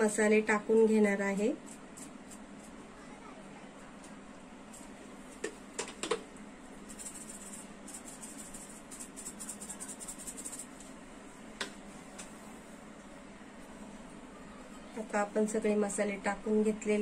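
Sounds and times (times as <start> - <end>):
seasoning rattling out of container: 6.9 - 10.7.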